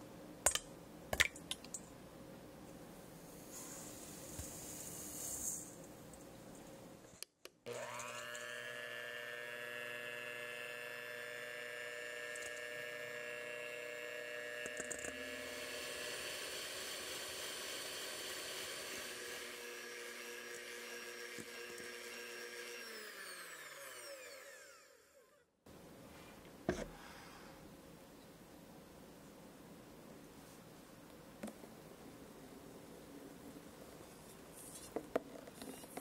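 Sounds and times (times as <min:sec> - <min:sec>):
electric hand mixer whining: 0:07.7 - 0:25.4.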